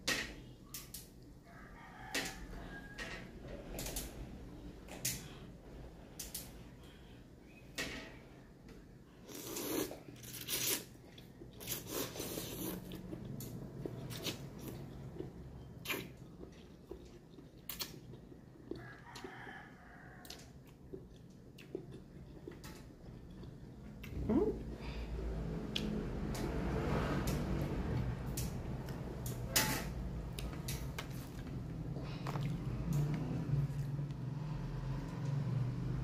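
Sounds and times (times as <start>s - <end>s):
person slurping noodles: 9.2s - 11.0s, 11.6s - 13.0s
chewing: 9.2s - 24.2s, 30.2s - 34.2s.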